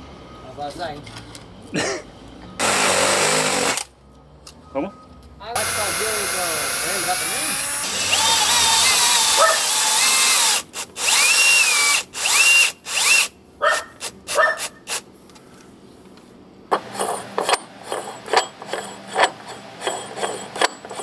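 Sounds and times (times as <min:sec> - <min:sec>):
cordless drill whining: 0:02.6 - 0:03.8, 0:05.6 - 0:13.3.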